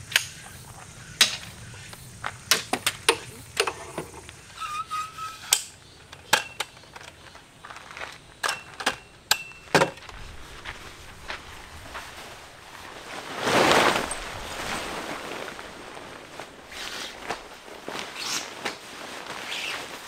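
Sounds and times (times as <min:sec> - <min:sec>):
camping gear clicks and knocks: 0:00.0 - 0:04.5, 0:05.5 - 0:11.7
short squeak: 0:04.5 - 0:05.7.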